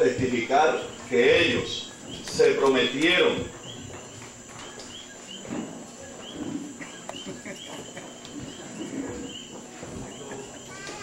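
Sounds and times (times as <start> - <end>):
frogs chirping: 0.0 - 11.0
faint murmur of people: 3.2 - 11.0.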